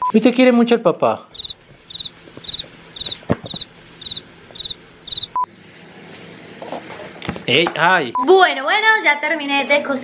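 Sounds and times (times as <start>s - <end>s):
cricket chirping: 1.4s - 5.4s
electronic beep: 1.4s - 5.5s.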